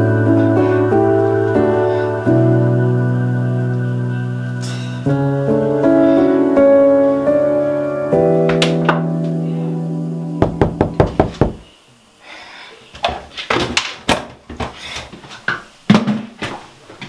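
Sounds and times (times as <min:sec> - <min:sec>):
sustained piano chord: 0:00.0 - 0:11.4.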